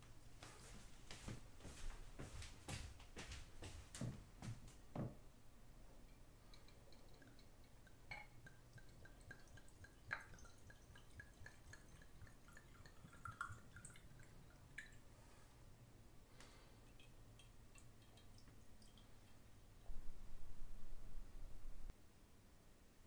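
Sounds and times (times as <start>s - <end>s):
water dripping into glass jar: 6.0s - 15.1s, 16.8s - 19.4s.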